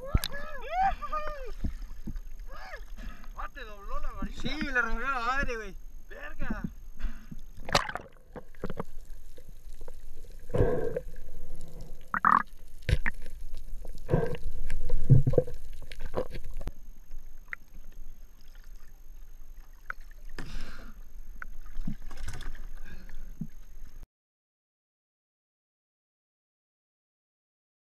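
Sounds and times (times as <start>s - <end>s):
water splashing and sloshing: 1.4s - 3.4s, 7.4s - 24.0s
underwater gurgles: 7.0s - 24.0s.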